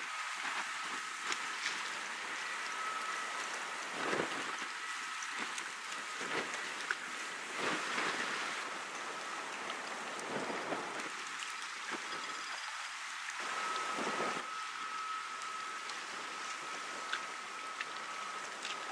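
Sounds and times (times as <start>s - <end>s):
river water splashing and lapping: 0.0s - 18.9s
faint high steady tone: 0.1s - 5.4s, 12.0s - 18.6s.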